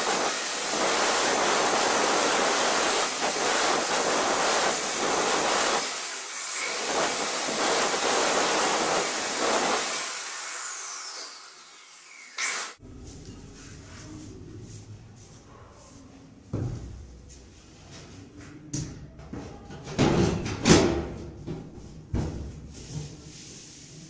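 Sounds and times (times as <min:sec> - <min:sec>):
grinder winding down whine: 0:09.8 - 0:12.8.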